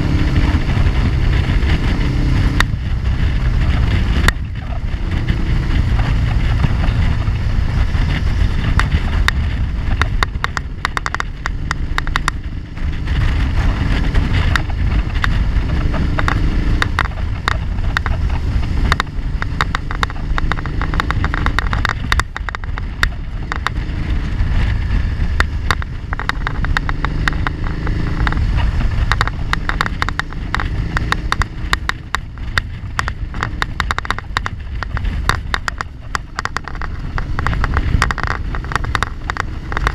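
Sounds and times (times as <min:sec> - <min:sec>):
motorcycle engine: 0:00.0 - 0:39.9
wind rumble on microphone: 0:00.0 - 0:39.9
small clicks and rattles: 0:00.3 - 0:39.9.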